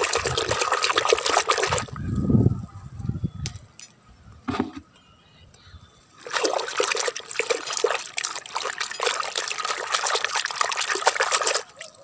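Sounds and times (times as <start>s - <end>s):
hand splashing in water bucket: 0.0s - 1.9s, 6.2s - 11.9s.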